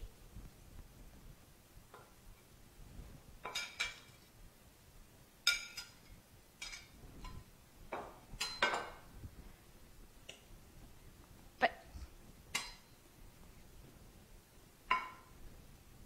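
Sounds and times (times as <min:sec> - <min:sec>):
utensils and dishes clinking: 0:03.4 - 0:04.2, 0:05.4 - 0:09.0.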